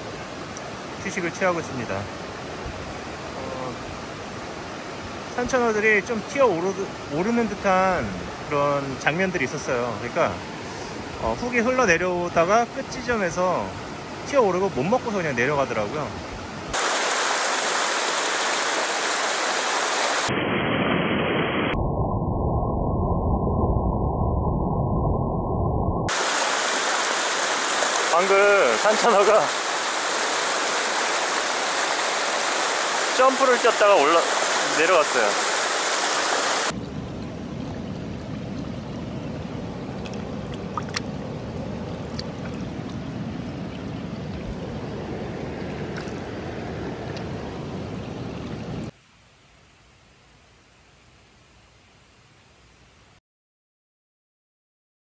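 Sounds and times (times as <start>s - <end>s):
stream rushing over rocks: 0.0s - 20.3s, 26.1s - 49.0s.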